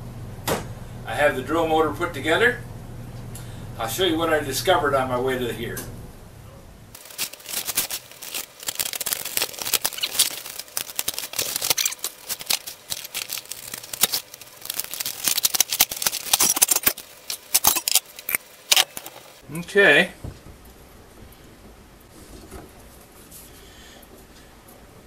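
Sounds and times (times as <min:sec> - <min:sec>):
plastic wrapping tearing and crinkling: 0:07.0 - 0:19.4.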